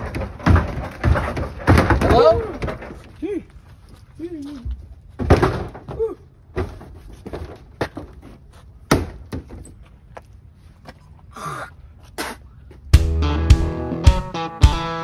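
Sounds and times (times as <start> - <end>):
plastic door banging shut: 0.0 - 3.0, 5.2 - 8.0.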